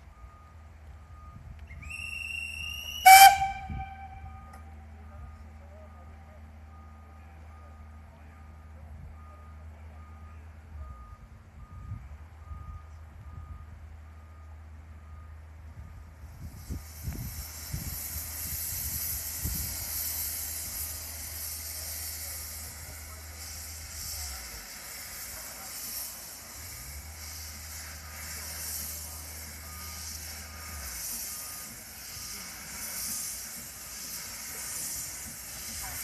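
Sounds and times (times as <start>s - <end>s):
steam locomotive hissing steam: 1.6s - 4.8s, 16.1s - 36.0s.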